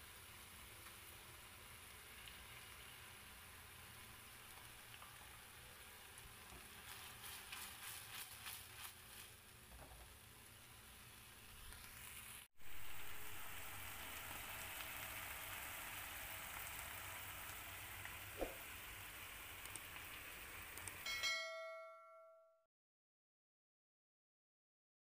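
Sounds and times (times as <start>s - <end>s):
food sizzling in a frying pan: 0.0s - 21.5s
short bell-like chime: 21.1s - 22.7s.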